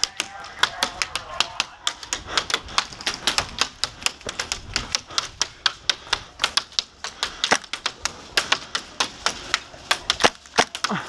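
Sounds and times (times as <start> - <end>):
pellets ticking on plywood: 0.0 - 11.0.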